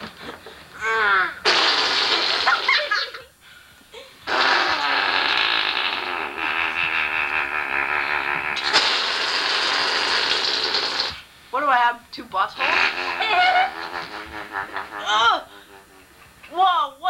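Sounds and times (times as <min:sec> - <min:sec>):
person blowing raspberries: 0:00.8 - 0:03.0, 0:04.2 - 0:11.3, 0:12.6 - 0:16.4.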